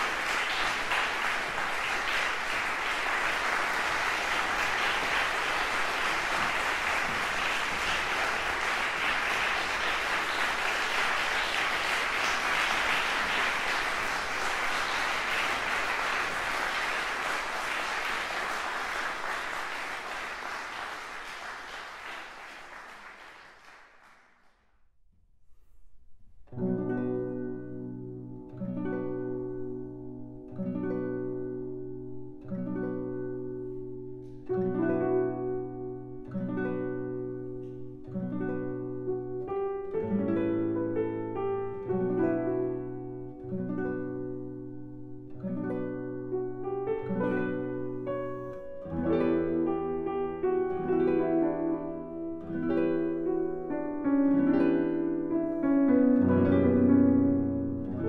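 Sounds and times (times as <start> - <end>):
audience applauding: 0.0 - 24.6
plucked-string music: 26.4 - 58.0.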